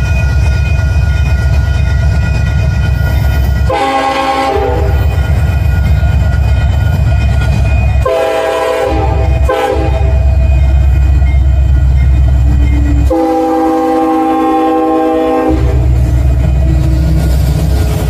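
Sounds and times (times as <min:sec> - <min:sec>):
train rumbling by: 0:00.0 - 0:18.0
locomotive air horn blasts: 0:03.7 - 0:05.0, 0:08.0 - 0:10.2, 0:13.0 - 0:16.0.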